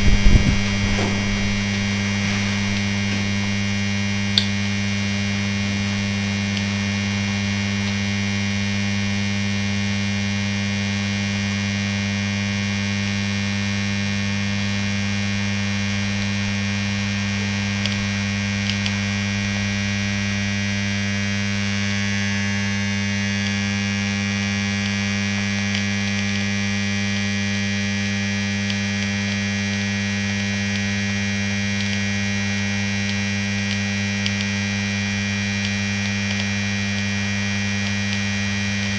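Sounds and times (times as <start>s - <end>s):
electric motor humming deeply: 0.0s - 38.9s.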